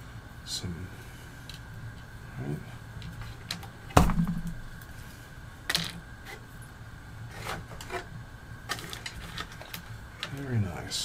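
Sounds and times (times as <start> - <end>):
small parts knocking on a mat: 3.0 - 4.7, 5.7 - 6.0.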